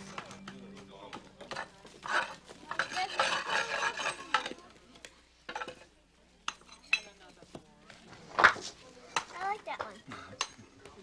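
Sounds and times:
metal tool scraping brick: 0:01.5 - 0:04.5.

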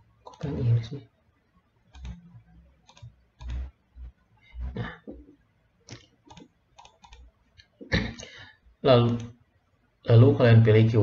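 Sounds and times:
computer mouse clicking: 0:00.2 - 0:00.5, 0:01.9 - 0:03.8, 0:05.8 - 0:07.8, 0:09.0 - 0:09.4.

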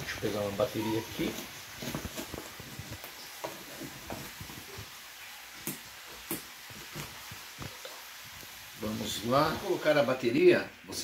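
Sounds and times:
faint hiss: 0:00.0 - 0:11.0.

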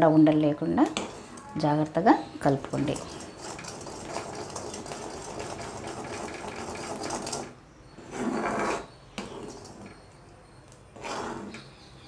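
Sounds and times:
spoon scraping a pan: 0:00.8 - 0:01.8, 0:02.6 - 0:10.1, 0:10.9 - 0:11.7.

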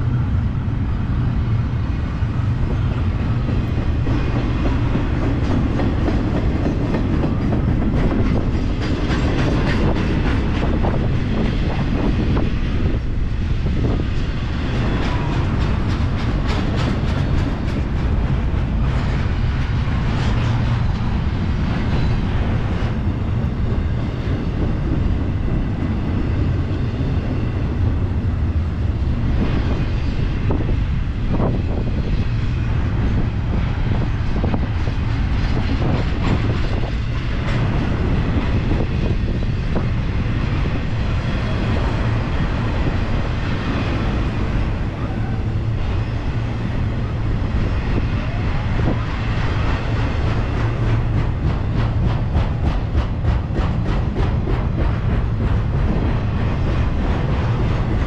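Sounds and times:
train wheels rumbling on rail: 0:00.0 - 0:58.0
clicks and clanks of couplings: 0:15.0 - 0:18.1.

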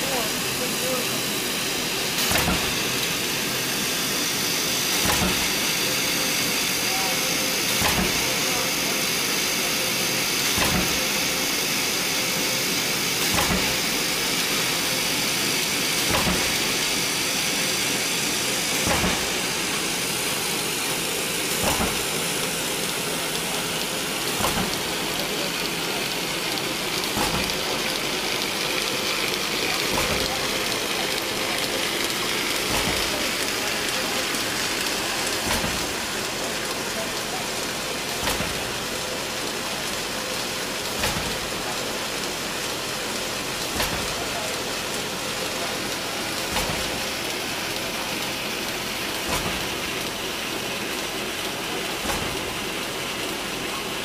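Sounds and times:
machinery hiss and whirr: 0:00.0 - 0:54.0
sharp machine knock: 0:02.2 - 0:03.1, 0:04.9 - 0:05.9, 0:07.7 - 0:08.5, 0:10.5 - 0:11.3, 0:13.2 - 0:20.7, 0:21.4 - 0:23.6, 0:24.2 - 0:36.1, 0:38.0 - 0:38.8, 0:40.8 - 0:41.7, 0:43.6 - 0:44.4, 0:46.4 - 0:48.3, 0:49.1 - 0:50.2, 0:51.9 - 0:52.8.

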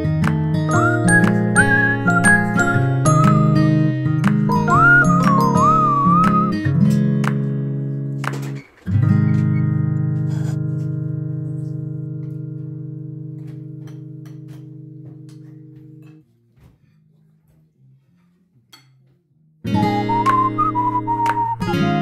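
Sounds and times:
guitar chord ringing: 0:00.4 - 0:08.2, 0:19.7 - 0:22.0.

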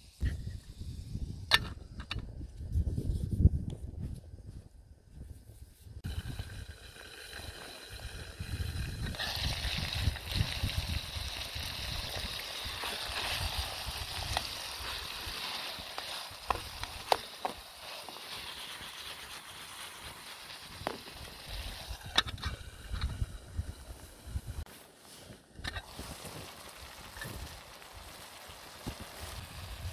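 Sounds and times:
tomatoes sizzling in a pan: 0:06.0 - 0:24.6, 0:25.8 - 0:29.9.

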